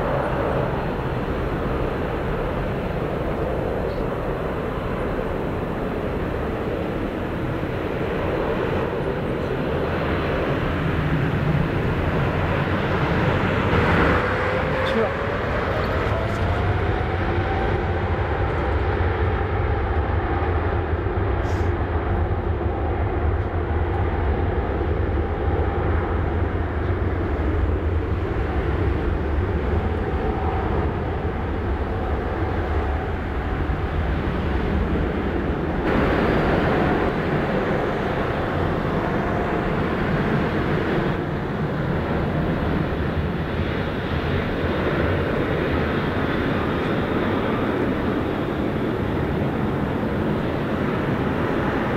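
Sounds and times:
jet engines running: 0.0s - 51.9s.

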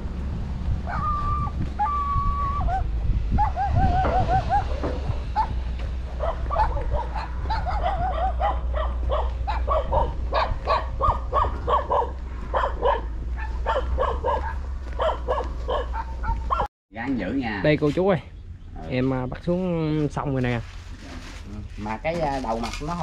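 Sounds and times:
dog barking and yipping: 0.8s - 1.2s, 2.6s - 16.7s.

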